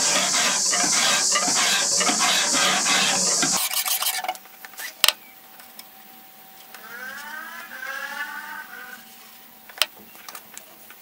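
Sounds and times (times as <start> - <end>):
file rasping on steel blade: 0.0 - 4.3.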